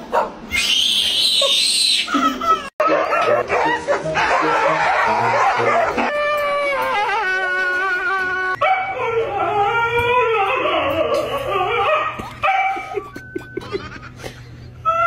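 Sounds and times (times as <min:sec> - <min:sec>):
dogs whining and yelping: 0:00.4 - 0:14.1, 0:14.8 - 0:15.0
baby squealing laugh: 0:00.7 - 0:02.7, 0:03.6 - 0:08.6
laughter: 0:02.1 - 0:02.7, 0:12.2 - 0:14.7
dog howling: 0:02.8 - 0:12.2.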